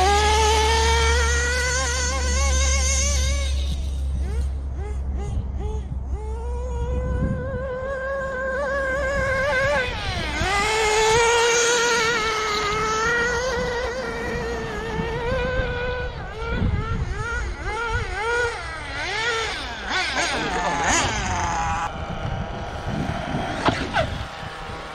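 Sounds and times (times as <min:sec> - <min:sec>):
small engine revving: 0:00.0 - 0:24.9.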